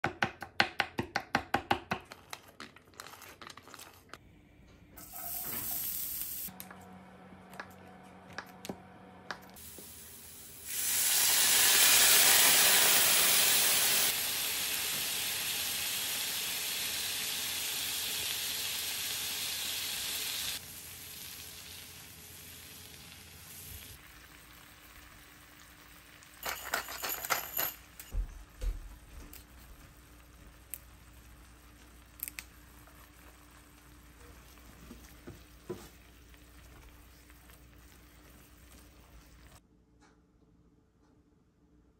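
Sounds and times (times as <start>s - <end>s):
garlic sizzling in a pan: 5.0s - 6.5s, 9.6s - 26.4s.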